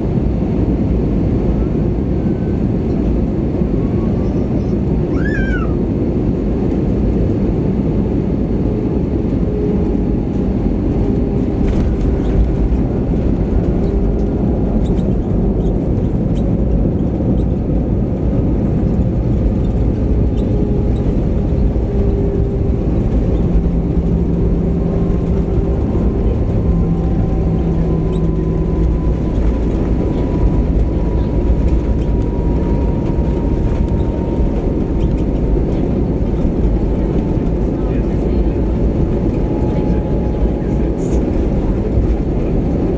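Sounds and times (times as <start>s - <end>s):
loud roar of jet engines: 0.0s - 42.9s
faint engine tones falling in pitch: 1.4s - 42.9s
wheels on runway: 8.6s - 42.9s.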